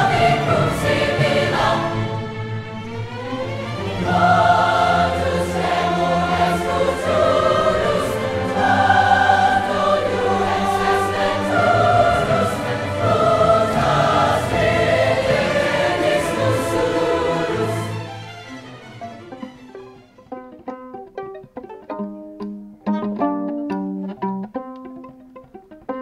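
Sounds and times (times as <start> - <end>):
choir singing with orchestra: 0.0 - 20.0.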